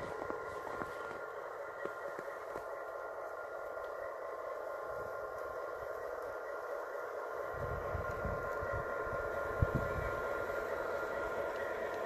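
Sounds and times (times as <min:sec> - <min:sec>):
model locomotive motor whine: 0:00.0 - 0:12.0.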